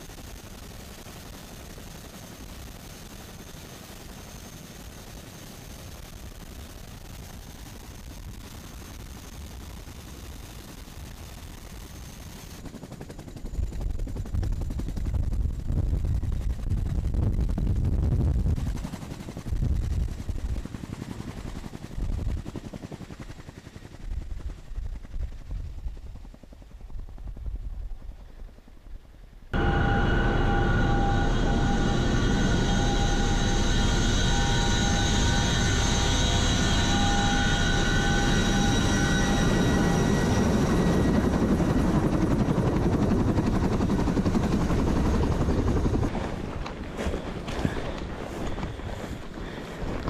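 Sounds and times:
helicopter cabin drone: 0.0 - 28.8, 29.4 - 50.0
helicopter rotor rumble: 0.0 - 50.0
faint high whine: 29.5 - 46.1.

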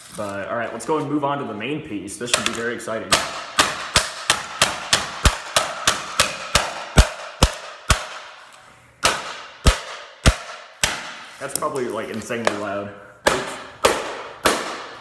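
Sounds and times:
mallet hammering plastic: 2.3 - 8.4, 9.0 - 11.3, 12.4 - 15.0.

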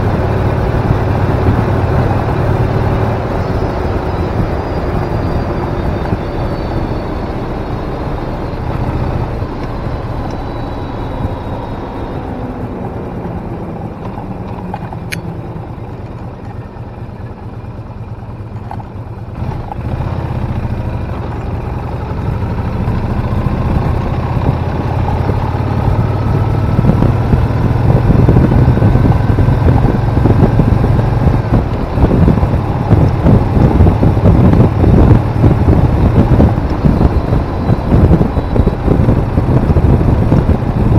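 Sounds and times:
motorcycle engine accelerating: 0.0 - 40.9
wind buffeting on microphone: 19.4 - 40.9.

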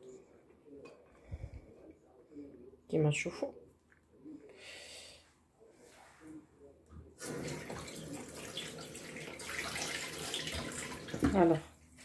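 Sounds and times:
faint soft sounds: 0.0 - 2.9, 3.6 - 7.2
running tap water: 7.2 - 11.6.

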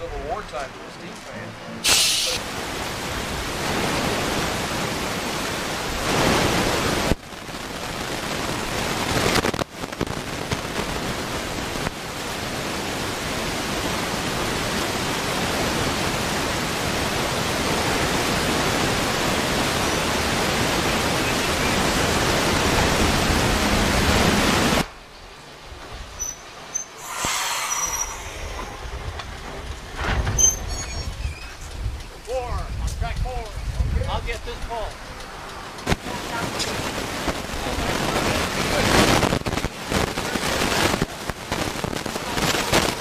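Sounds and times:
loud rushing hiss: 1.8 - 24.9, 26.0 - 31.7.

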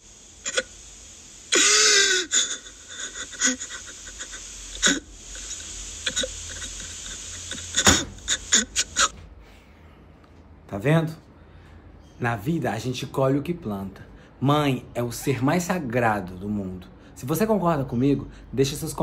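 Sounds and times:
slaps and thumps: 7.8 - 8.2.

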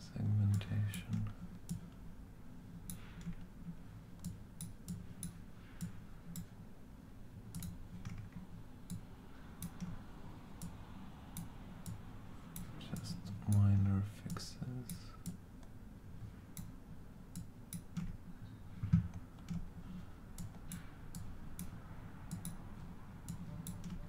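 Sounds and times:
low steady hum: 0.0 - 24.0
computer mouse clicks: 2.8 - 3.5, 4.2 - 6.5, 7.5 - 10.0, 10.6 - 15.8, 16.5 - 18.2, 18.8 - 22.6, 23.2 - 24.0.

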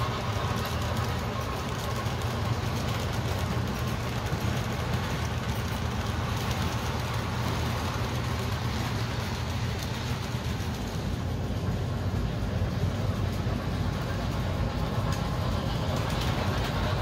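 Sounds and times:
model train wheels rumbling on rails: 0.0 - 17.0.

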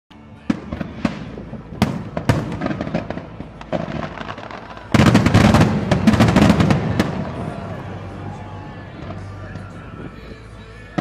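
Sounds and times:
fireworks bangs and crackle: 0.2 - 11.0.

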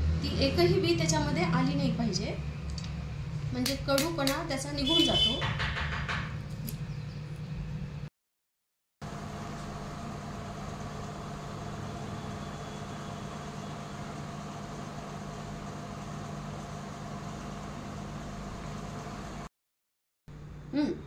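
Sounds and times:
machine hum with drone: 9.0 - 19.5.

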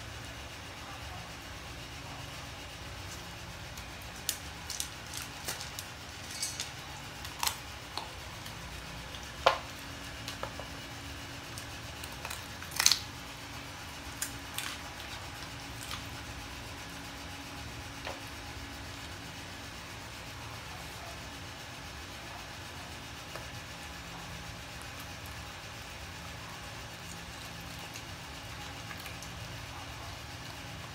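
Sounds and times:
dog chewing bones: 3.0 - 13.3.

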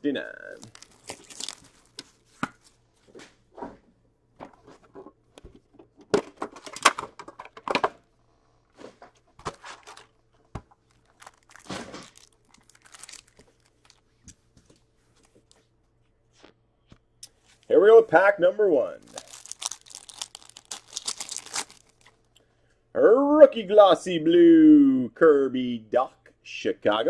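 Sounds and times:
plastic wrapping crinkling: 0.4 - 2.8, 9.5 - 15.6, 19.0 - 22.3.

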